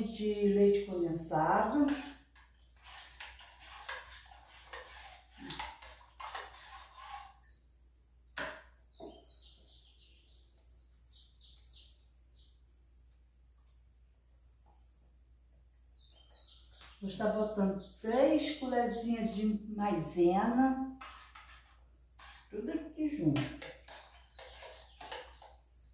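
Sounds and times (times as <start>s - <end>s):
spoon scraping metal saucepan: 1.5s - 7.6s, 20.4s - 25.6s
small bird chirping: 6.6s - 12.7s, 15.9s - 19.7s, 21.1s - 25.9s.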